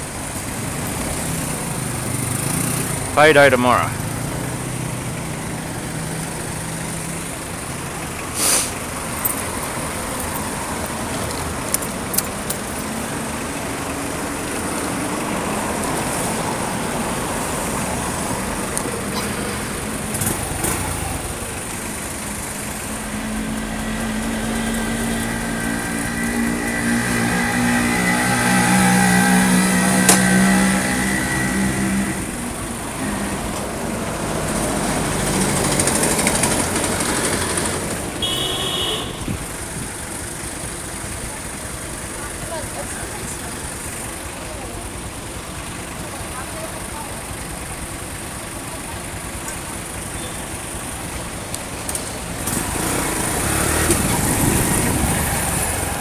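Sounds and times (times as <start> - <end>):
street traffic noise: 0.0 - 56.0
vehicle engine passing close: 0.4 - 38.2, 49.8 - 56.0.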